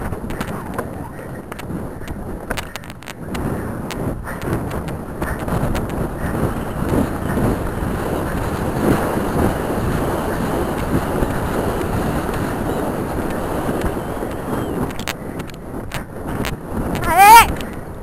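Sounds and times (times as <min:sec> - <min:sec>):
wind buffeting microphone: 0:00.0 - 0:18.0
sharp clicks: 0:14.9 - 0:16.6.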